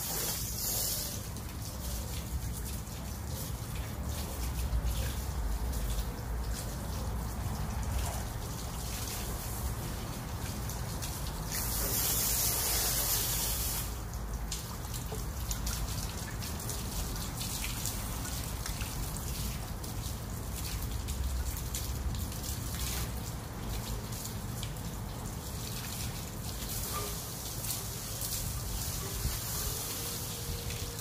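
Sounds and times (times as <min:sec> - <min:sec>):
hose water spraying: 0:00.0 - 0:18.6, 0:25.8 - 0:31.0
drips and small splashes: 0:00.0 - 0:31.0.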